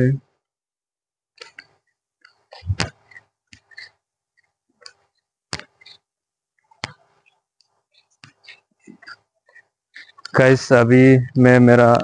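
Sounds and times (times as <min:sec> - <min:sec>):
microphone handling clicks and knocks: 0:02.5 - 0:06.0
dull thump on microphone: 0:02.6 - 0:02.9.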